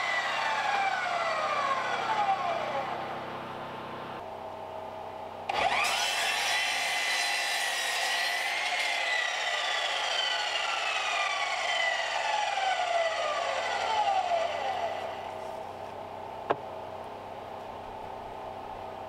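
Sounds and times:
miter saw blade whine winding down: 0.0s - 4.2s, 5.5s - 15.6s.

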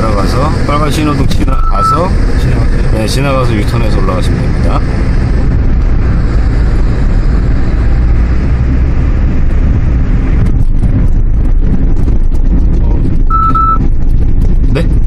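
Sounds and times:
car interior road rumble: 0.0s - 15.0s
short steady beep: 1.6s - 2.0s, 13.3s - 13.8s.

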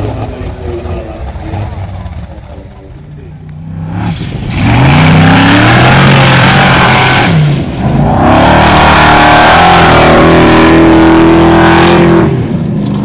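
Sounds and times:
engine revving at full throttle: 3.6s - 13.0s.

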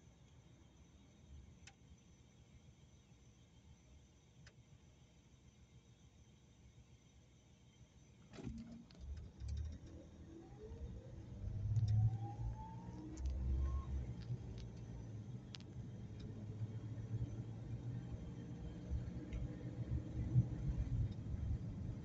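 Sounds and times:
drivetrain whine: 8.2s - 22.0s
car engine and road rumble: 8.4s - 22.0s.

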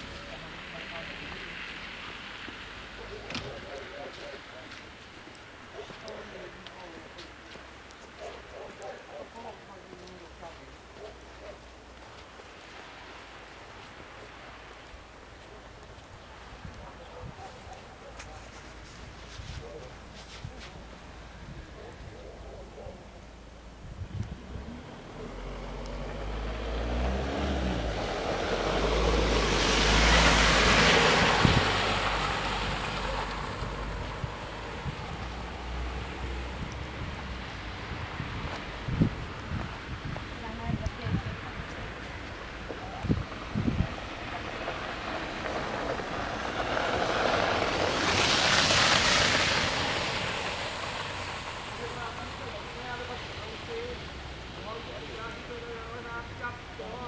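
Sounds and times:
car tyres hissing on slush: 0.0s - 7.8s, 8.4s - 16.8s, 17.5s - 22.2s, 24.9s - 40.6s, 41.5s - 57.0s
tyres hissing through slush: 44.4s - 56.1s.

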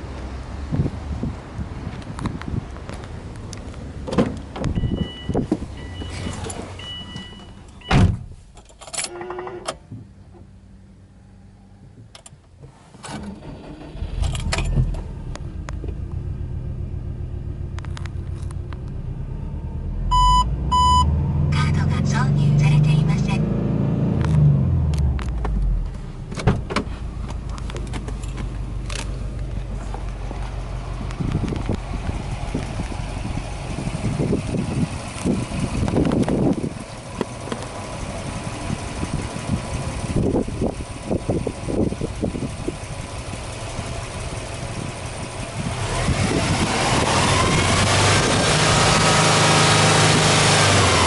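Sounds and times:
car door shutting: 4.0s - 8.4s, 25.2s - 29.1s
car engine idling: 24.9s - 46.8s.

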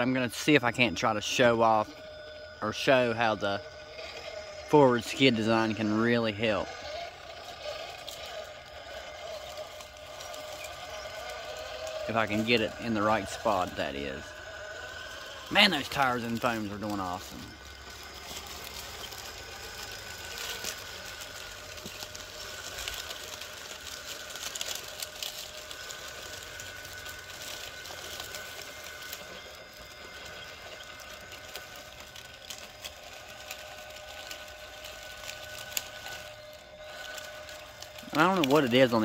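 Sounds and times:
dry leaves crackling under tires: 0.0s - 39.0s
electric motor whining: 0.0s - 39.0s.

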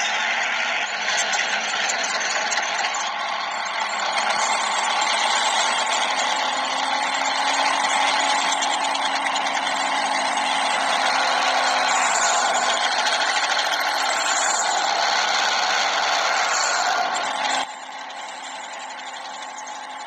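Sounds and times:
engine idling: 0.0s - 20.0s.

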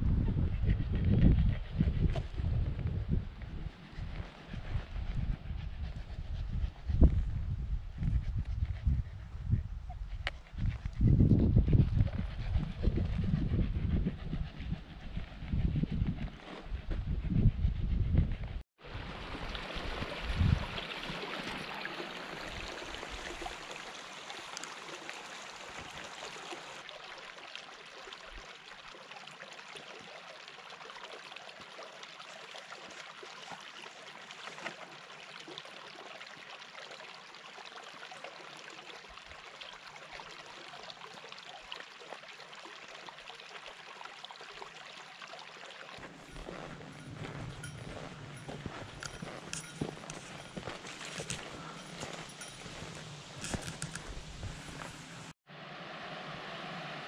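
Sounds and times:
stream flowing over stones: 18.8s - 57.0s.

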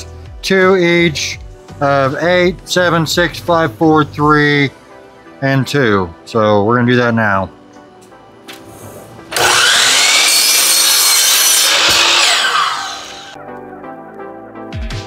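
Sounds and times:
miter saw cutting wood: 9.3s - 13.4s.

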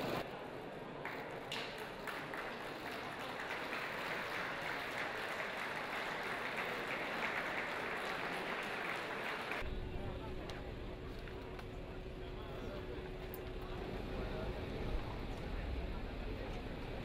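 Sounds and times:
crowd applauding: 1.0s - 9.7s.

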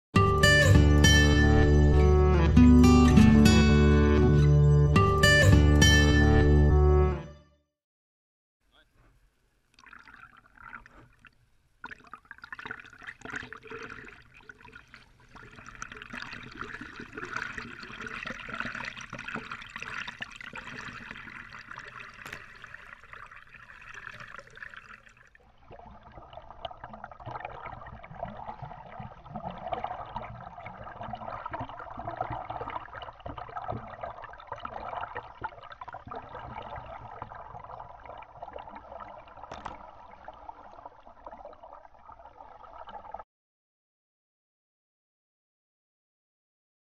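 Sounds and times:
swimming pool water splashing: 8.7s - 43.2s.

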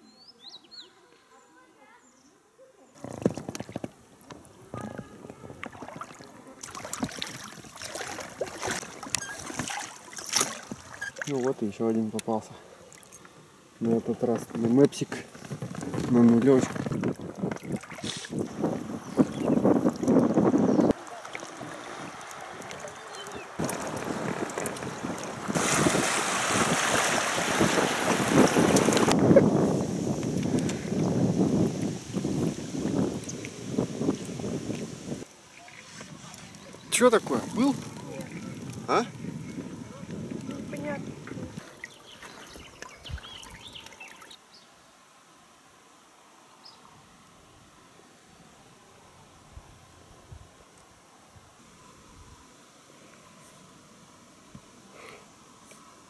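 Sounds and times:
light water splashing: 3.0s - 29.2s, 31.6s - 44.4s
small waves slapping: 4.8s - 11.6s, 15.3s - 29.3s
wind gusting on microphone: 15.3s - 21.0s, 21.6s - 35.3s, 35.9s - 43.8s.

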